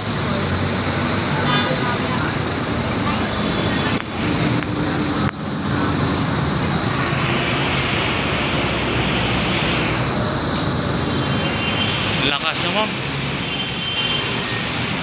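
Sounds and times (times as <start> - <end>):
power line arcing: 0.1 - 15.0.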